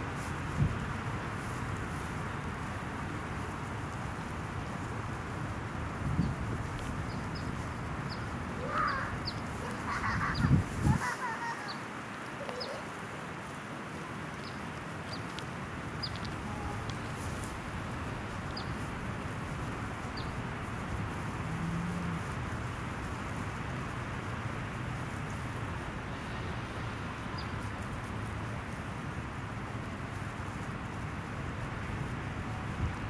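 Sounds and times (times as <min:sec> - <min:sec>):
short bird-like calls: 0:08.6 - 0:11.8
faint ticks: 0:12.2 - 0:12.8, 0:14.3 - 0:17.6
outdoor hiss: 0:22.5 - 0:33.0.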